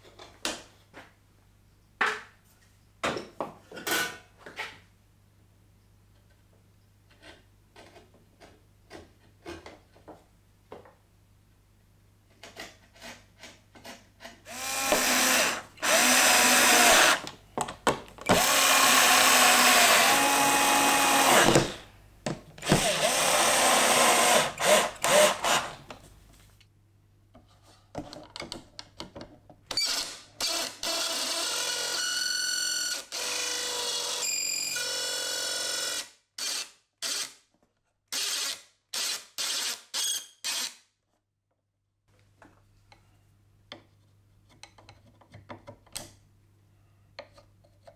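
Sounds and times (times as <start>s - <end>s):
power tool motor running: 14.5s - 17.2s, 18.3s - 21.7s.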